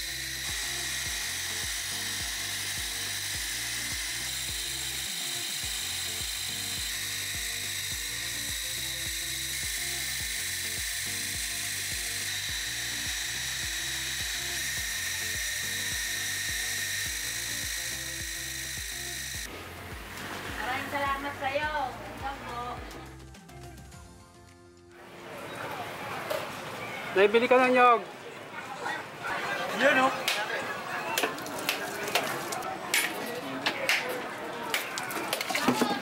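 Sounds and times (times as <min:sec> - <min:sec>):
grinding mill whine: 0:00.0 - 0:19.5
background music with a beat: 0:15.9 - 0:24.9.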